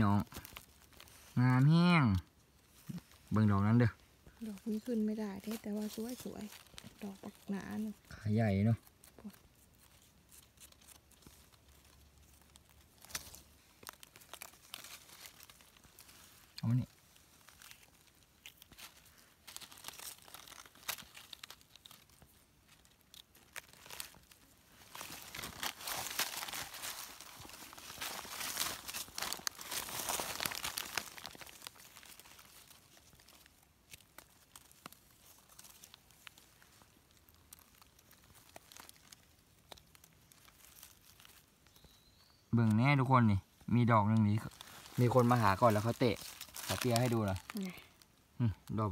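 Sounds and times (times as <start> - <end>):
dry leaves rustling and crackling: 0.0 - 48.9
small clicks and scrapes: 8.8 - 16.6.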